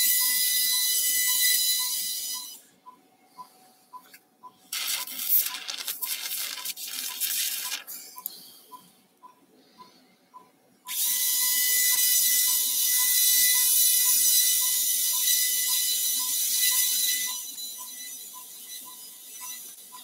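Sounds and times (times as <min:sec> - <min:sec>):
high-speed surgical drill: 0:04.8 - 0:07.9, 0:10.9 - 0:20.0.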